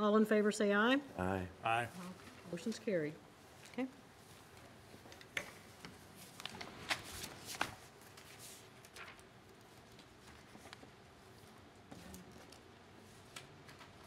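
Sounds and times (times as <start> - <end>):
paper sheets rustling: 6.2 - 11.5.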